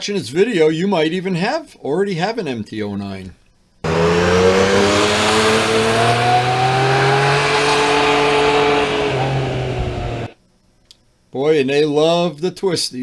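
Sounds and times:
motorcycle engine accelerating: 3.8s - 10.4s.

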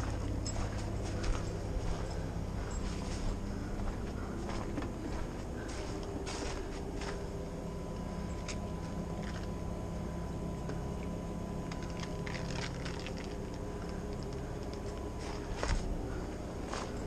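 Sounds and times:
low mechanical hum: 0.0s - 17.0s
rubber hose clicks and rustles: 11.7s - 15.9s.

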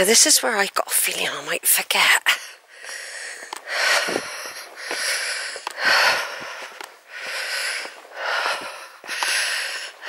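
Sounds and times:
person breathing noisily: 2.4s - 10.0s.

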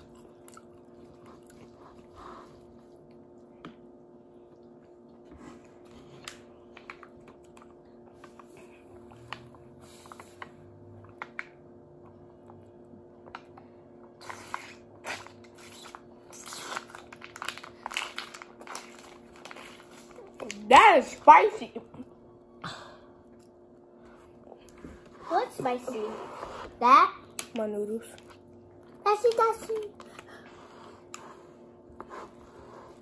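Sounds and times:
chewing noodles: 0.0s - 3.6s, 4.5s - 20.6s
sipping through a straw: 14.2s - 17.0s.

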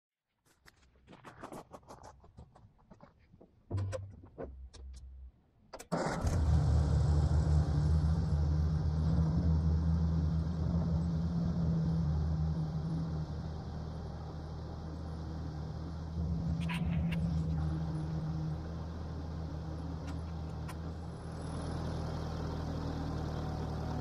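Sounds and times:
tractor engine cranking: 5.8s - 8.2s
tractor engine idling: 6.0s - 24.0s.

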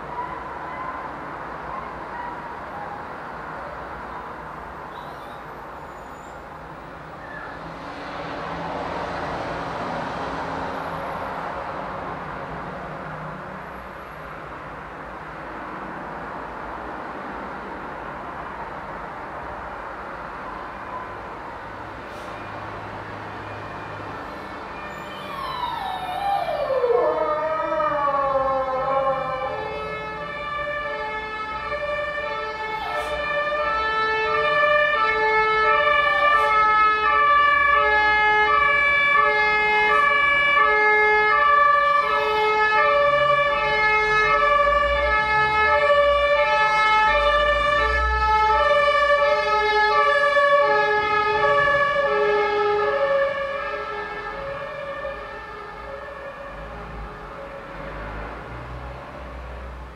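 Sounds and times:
two-tone emergency siren: 20.5s - 59.9s
short falling siren wails: 23.5s - 58.0s.

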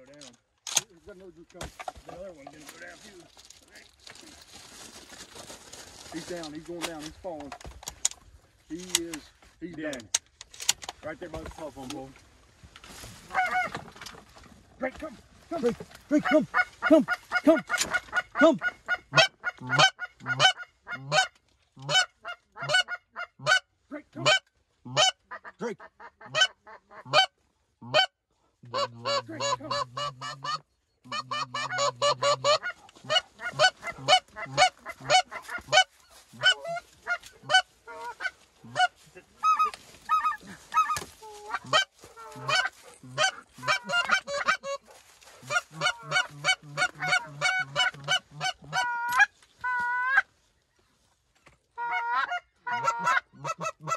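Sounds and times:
geese calling: 12.9s - 14.0s, 14.9s - 50.5s, 51.7s - 53.9s.

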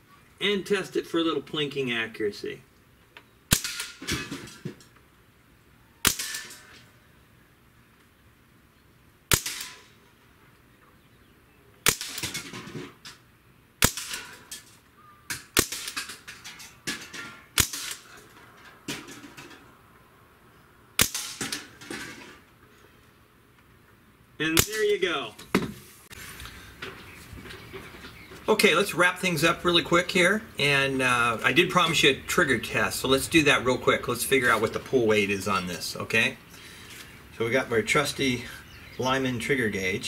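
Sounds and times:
air rifle shots: 3.5s - 4.4s, 6.0s - 6.8s, 9.3s - 10.0s, 11.8s - 12.8s, 13.8s - 14.6s, 15.3s - 16.3s, 17.5s - 18.2s, 21.0s - 21.8s, 24.6s - 25.0s
pellets hitting tin cans: 11.9s - 13.0s, 15.3s - 19.6s.

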